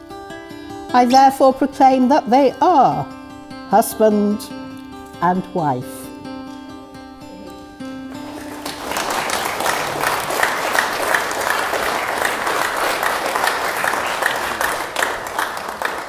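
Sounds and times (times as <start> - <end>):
guitar-like held notes: 0.0 - 8.9
crowd clapping: 8.2 - 16.0.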